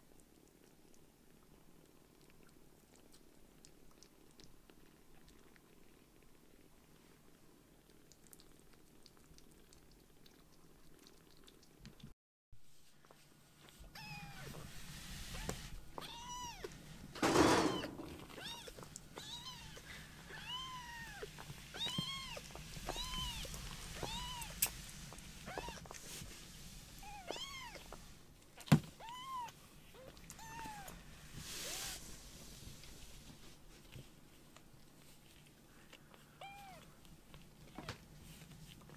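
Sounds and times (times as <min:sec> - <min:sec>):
rustling bump: 0:17.1 - 0:18.4.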